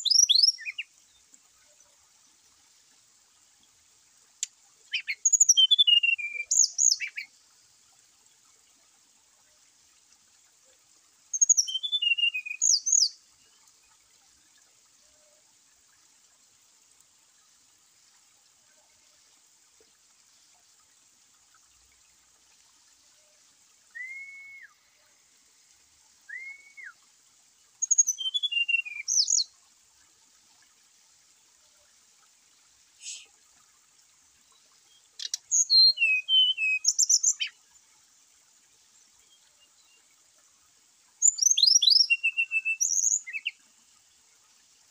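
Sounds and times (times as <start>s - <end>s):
soft arched whistles: 23.9s - 25.0s, 26.3s - 27.0s.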